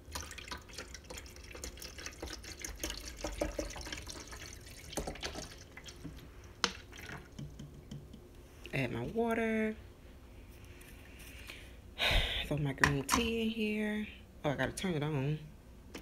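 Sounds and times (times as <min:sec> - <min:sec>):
water pouring and glugging: 0:00.0 - 0:07.8.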